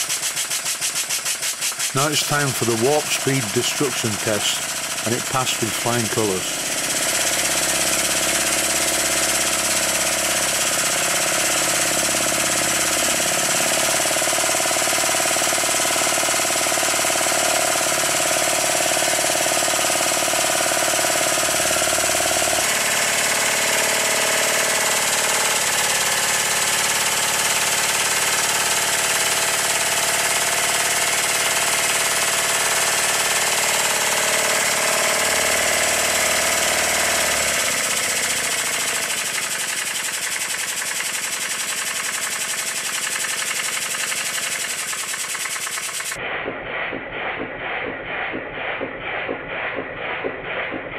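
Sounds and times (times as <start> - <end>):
steam hiss: 0.0 - 2.2
model steam engine running fast: 0.0 - 46.2.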